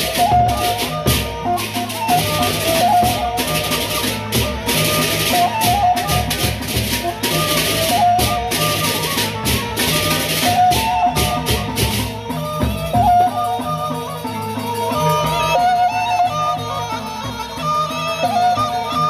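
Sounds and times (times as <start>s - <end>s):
large barrel drums beaten: 0.0s - 13.8s.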